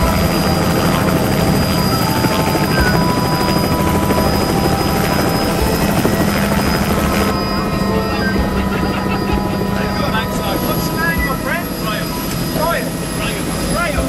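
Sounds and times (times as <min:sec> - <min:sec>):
helicopter rotor and turbine: 0:00.0 - 0:14.0.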